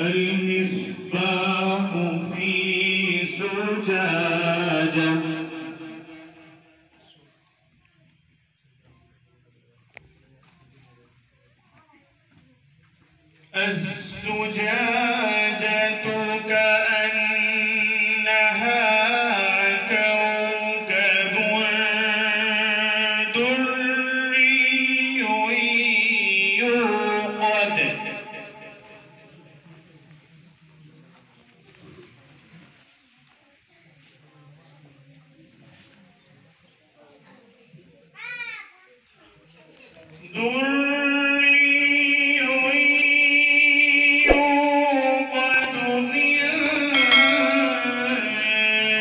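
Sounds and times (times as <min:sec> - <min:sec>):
man reciting melodically: 0:00.0 - 0:06.0, 0:13.6 - 0:28.8
man chanting into microphone: 0:00.0 - 0:06.5, 0:13.6 - 0:28.8
sharp click: 0:44.3 - 0:44.6.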